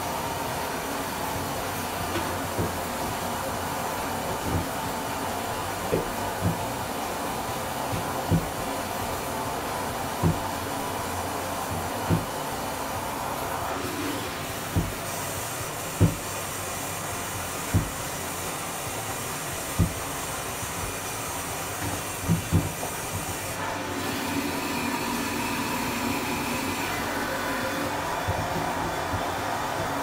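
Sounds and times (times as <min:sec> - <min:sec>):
dull knocks: 0:02.1 - 0:03.1, 0:04.2 - 0:06.8, 0:07.8 - 0:08.8, 0:10.2 - 0:10.8, 0:11.7 - 0:12.4, 0:14.7 - 0:15.0, 0:16.0 - 0:16.3, 0:17.7 - 0:18.0, 0:19.7 - 0:20.1, 0:21.8 - 0:23.3.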